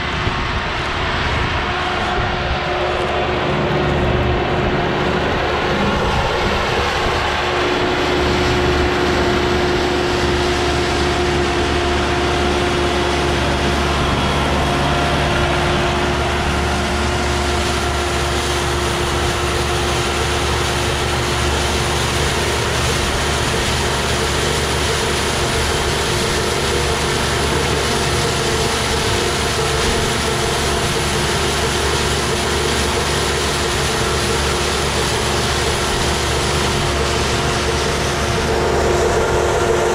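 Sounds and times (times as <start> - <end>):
baler working noise: 0.0 - 39.9
tractor engine drone: 0.0 - 39.9.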